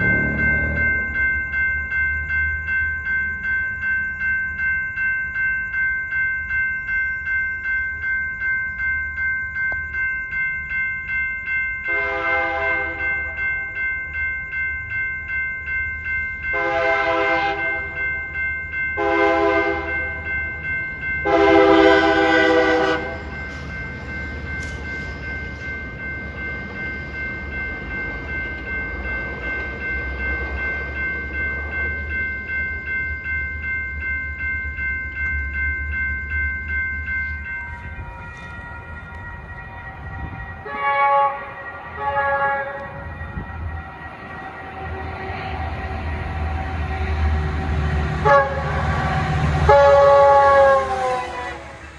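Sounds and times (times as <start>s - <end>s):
low rumble: 0.0s - 1.5s
crossing warning bell ringing: 0.0s - 51.9s
train horn blasts: 11.9s - 13.0s, 16.5s - 17.9s, 19.0s - 19.9s, 21.2s - 23.2s, 40.6s - 43.0s, 48.2s - 51.8s.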